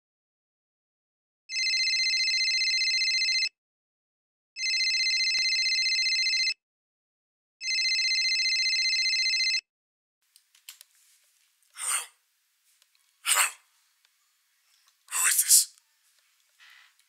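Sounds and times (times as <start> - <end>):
telephone ringing: 1.5 - 3.5, 4.6 - 6.6, 7.6 - 9.6.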